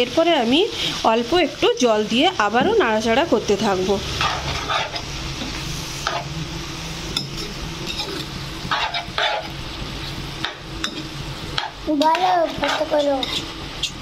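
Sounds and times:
food sizzling: 0.0s - 14.0s
spoon scraping a pan: 4.1s - 5.1s, 6.0s - 6.3s, 7.1s - 9.6s, 10.4s - 14.0s.

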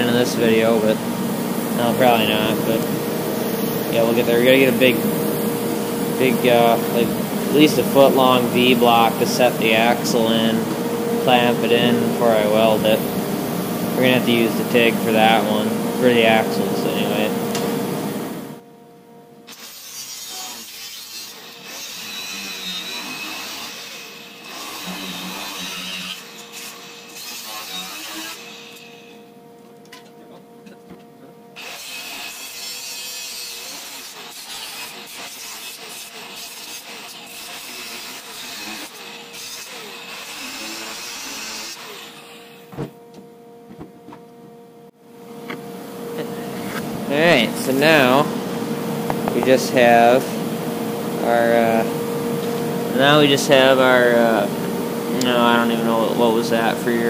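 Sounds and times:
angle grinder cutting metal: 1.7s - 10.5s, 19.5s - 29.2s, 31.6s - 42.7s.

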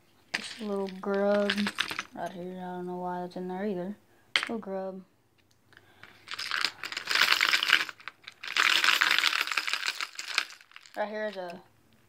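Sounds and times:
lures clattering in plastic box: 0.4s - 2.2s, 6.0s - 11.0s.

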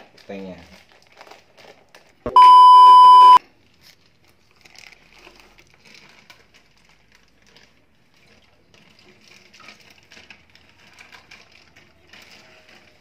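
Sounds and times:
plastic bag rustling: 0.0s - 2.2s, 3.6s - 13.0s
electronic beep tone: 2.3s - 3.4s.

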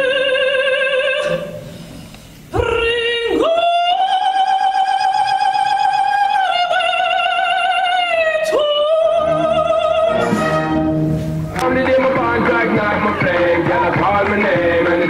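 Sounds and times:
wind band playing: 10.0s - 13.6s.

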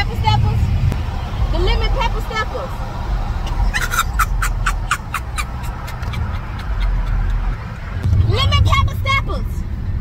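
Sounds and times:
car rumbling on road: 0.0s - 10.0s
high-pitched cackling laughter: 3.5s - 7.7s.

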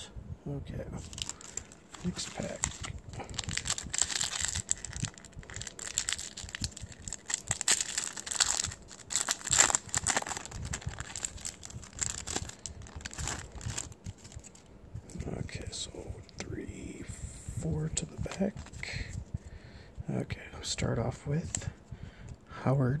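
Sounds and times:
foil wrapper crinkling and tearing: 1.0s - 14.7s.

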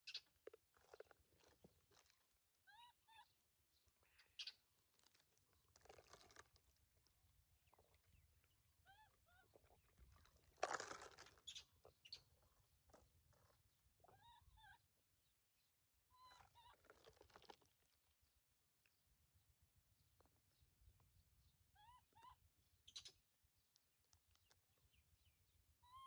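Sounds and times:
faint short chirping calls: 0.0s - 0.3s, 4.0s - 4.6s, 11.4s - 12.2s
rustling or crunching: 4.9s - 6.8s, 10.0s - 12.0s, 16.7s - 18.0s.

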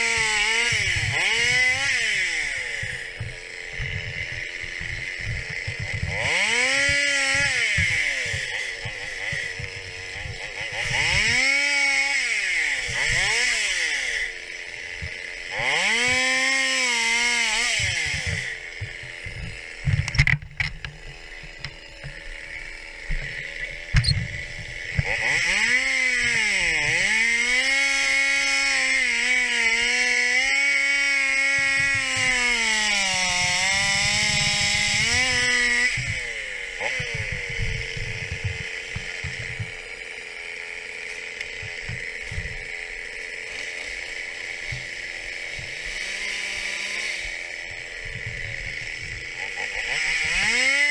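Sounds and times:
chainsaw cutting logs: 0.0s - 50.9s.

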